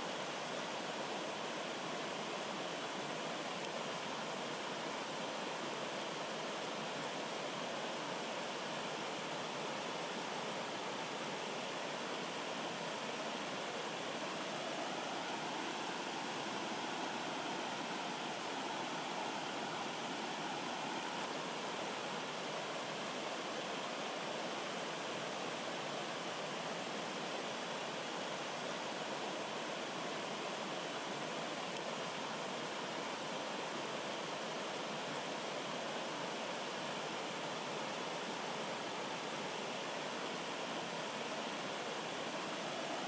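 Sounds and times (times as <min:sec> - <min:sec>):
stream rushing over cascades: 0:00.0 - 0:43.0.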